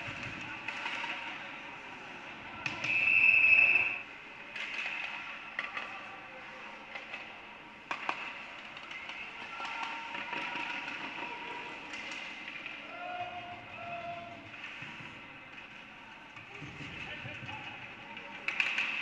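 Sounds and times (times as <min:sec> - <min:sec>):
hockey sticks clacking on puck: 0:00.0 - 0:01.5, 0:02.6 - 0:19.0
ice rink background noise: 0:00.0 - 0:19.0
referee whistle blast: 0:02.8 - 0:04.0.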